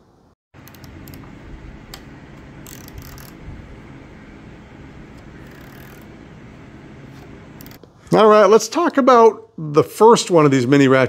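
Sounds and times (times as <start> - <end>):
steady low hum: 0.0 - 8.3.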